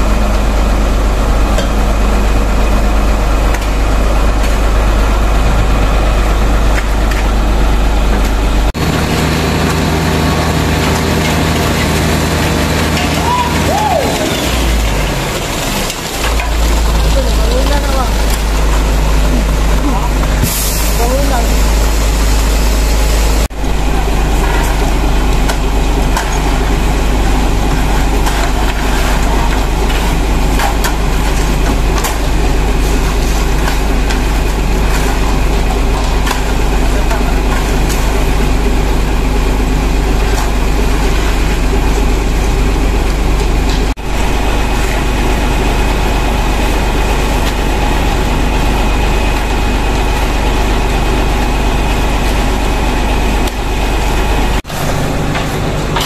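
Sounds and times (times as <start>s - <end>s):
diesel engine running: 0.0s - 56.0s
shovels scraping wet concrete: 8.8s - 21.6s, 23.8s - 42.1s, 45.8s - 56.0s.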